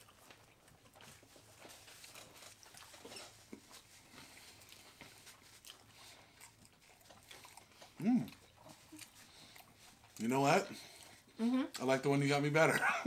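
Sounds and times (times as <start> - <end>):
mouth clicks and smacks chewing: 0.0 - 10.3.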